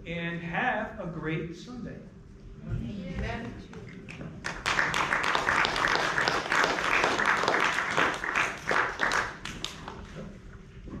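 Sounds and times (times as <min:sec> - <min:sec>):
congregation applauding: 0:04.0 - 0:10.2.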